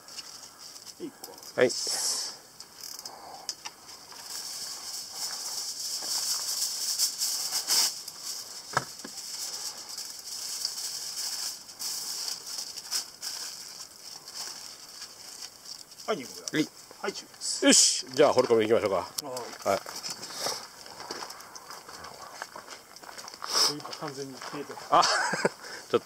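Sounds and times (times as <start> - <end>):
aluminium foil crinkling: 0.0 - 25.5.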